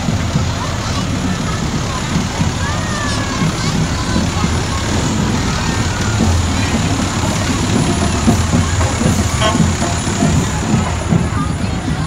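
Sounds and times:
diesel engine rumbling: 0.0 - 12.0
brief high tone: 9.4 - 9.8.

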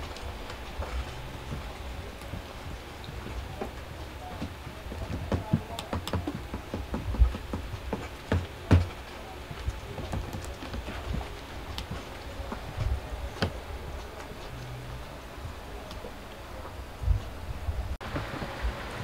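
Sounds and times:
dull thumps: 0.8 - 13.6.

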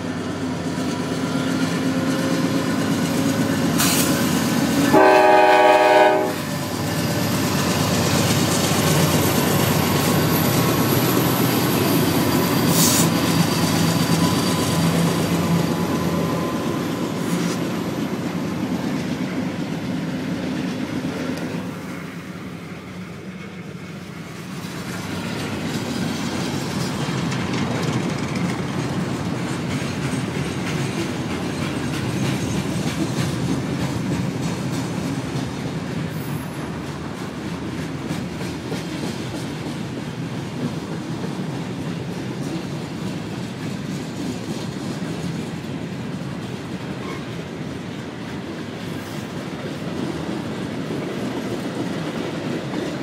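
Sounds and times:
freight train rumbling past: 0.0 - 53.0
wheels clicking over rail joints: 24.5 - 53.0.

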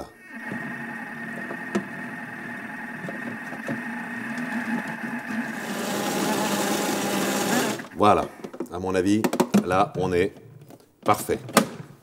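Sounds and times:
food processor motor whining: 0.3 - 8.0.

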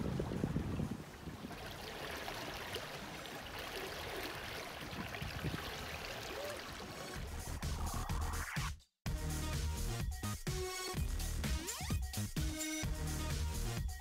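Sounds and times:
wind on microphone: 0.0 - 1.6, 4.8 - 6.0
water rushing along hull: 0.0 - 7.9.

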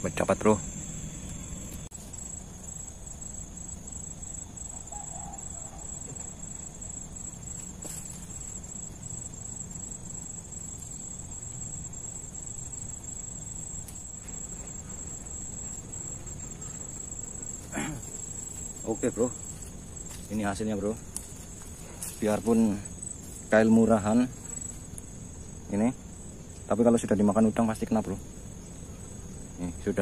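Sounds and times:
low steady rumble: 0.0 - 4.6
insects chirring: 0.0 - 30.0.

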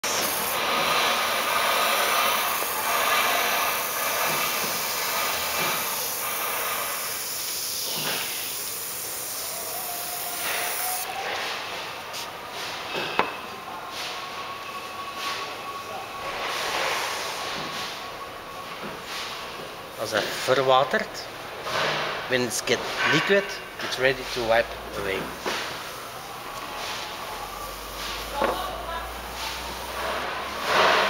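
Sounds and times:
aerosol can spraying: 0.0 - 11.1, 27.6 - 28.6.

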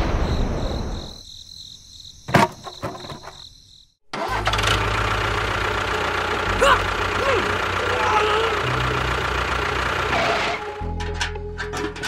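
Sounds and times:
engine idling: 4.2 - 12.0.

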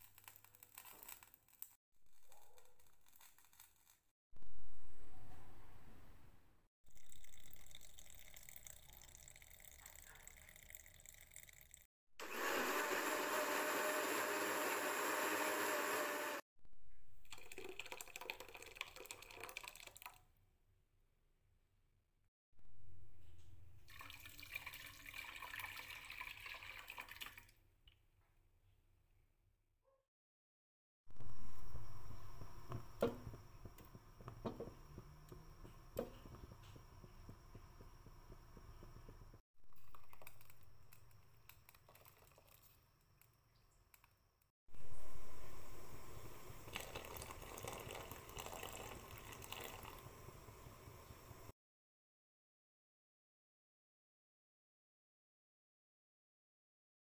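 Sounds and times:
liquid pouring and splashing: 0.0 - 1.8, 6.9 - 11.9, 17.2 - 20.2, 23.9 - 27.6, 39.7 - 44.1, 45.8 - 50.3
pot bubbling: 6.9 - 16.4, 17.2 - 20.2, 31.2 - 44.0, 44.8 - 51.5
blender running: 12.2 - 16.4
spoon stirring liquid: 39.8 - 43.3, 46.5 - 50.0.

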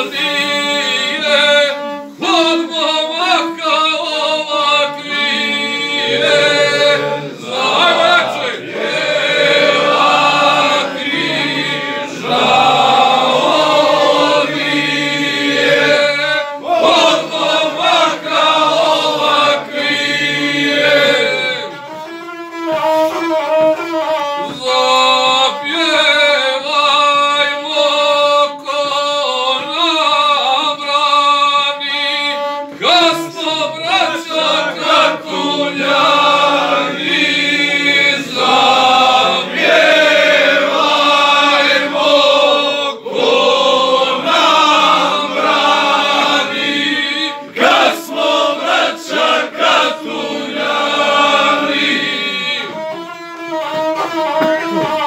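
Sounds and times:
man chanting a song: 0.0 - 22.2, 22.8 - 55.0
bowed single-string fiddle: 0.8 - 3.7, 19.5 - 26.0, 32.0 - 40.8, 51.5 - 55.0.

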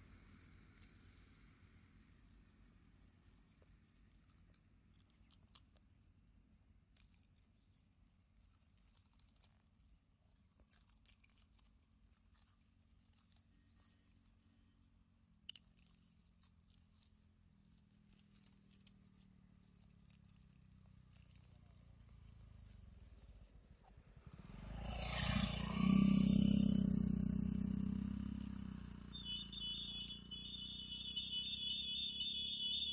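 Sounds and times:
motorcycle engine passing by: 20.6 - 32.9.

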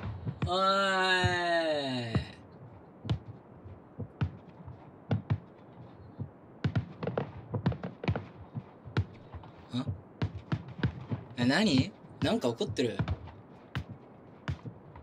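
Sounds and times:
fireworks bangs and crackles: 6.6 - 9.6.

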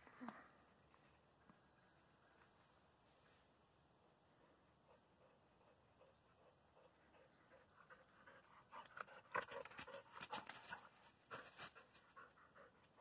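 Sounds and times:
dog panting: 4.8 - 13.0.

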